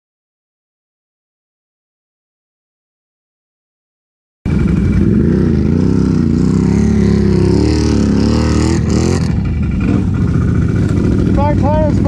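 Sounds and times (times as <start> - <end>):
atv engine running: 4.5 - 12.0.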